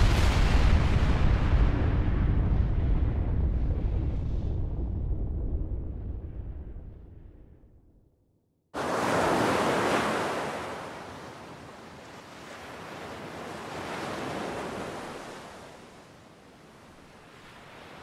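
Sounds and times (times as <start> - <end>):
deep explosion rumble: 0.0 - 8.0
ocean surf: 8.8 - 18.0.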